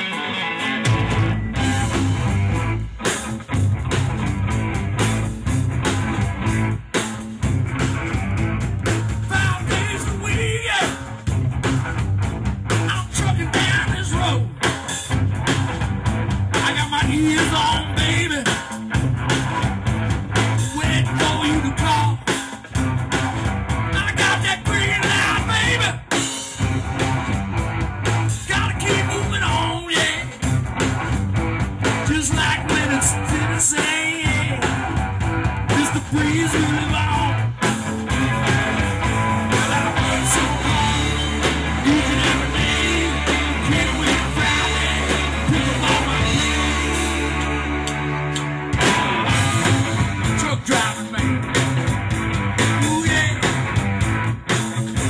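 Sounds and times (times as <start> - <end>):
bass line: 0.0 - 55.0
country-rock band playing: 0.0 - 55.0
man singing: 9.2 - 11.1, 12.8 - 14.6, 16.5 - 18.7, 20.6 - 22.4, 23.9 - 26.2, 28.4 - 30.4, 32.0 - 35.0, 35.7 - 47.0, 50.3 - 51.6, 52.7 - 53.6.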